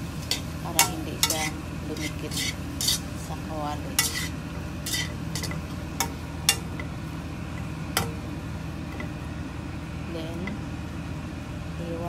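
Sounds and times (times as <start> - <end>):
low hum: 0.0 - 12.0
spatula scraping frying pan: 0.3 - 3.2, 3.9 - 6.7.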